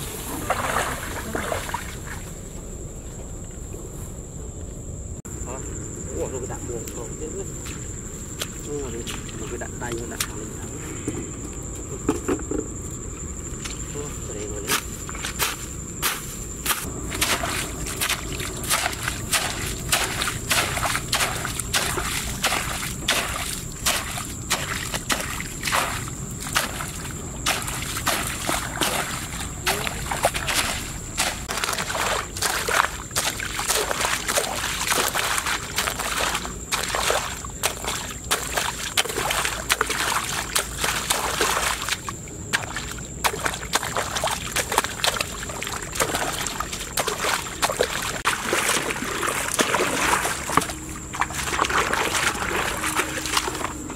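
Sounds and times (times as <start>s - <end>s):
hoe splashing in muddy water: 0.0s - 2.3s, 16.8s - 53.9s
hoe striking wet ground: 14.7s - 53.9s.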